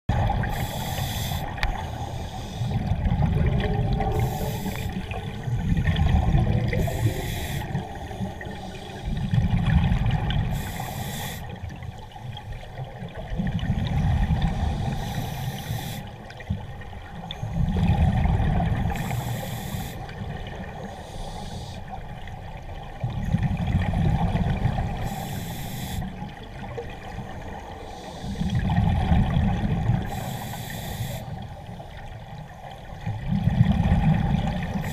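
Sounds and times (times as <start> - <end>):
exhaled bubbles rumbling: 0.1 - 10.9, 11.5 - 15.2, 16.1 - 19.4, 20.0 - 25.1, 26.1 - 30.3, 31.3 - 34.9
regulator inhalation hiss: 0.5 - 2.8, 4.2 - 5.0, 6.8 - 9.2, 10.5 - 11.6, 14.6 - 16.1, 19.0 - 20.1, 20.9 - 21.9, 25.0 - 26.2, 27.8 - 28.5, 30.1 - 31.4.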